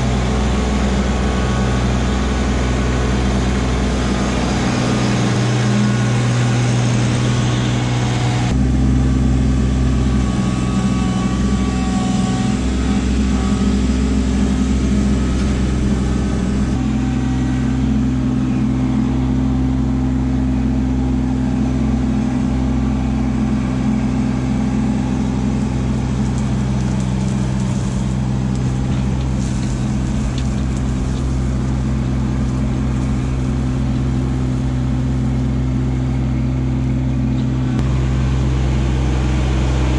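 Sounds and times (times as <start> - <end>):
diesel tractor engine running: 0.0 - 39.9
gravel spilling onto ground: 25.8 - 34.6.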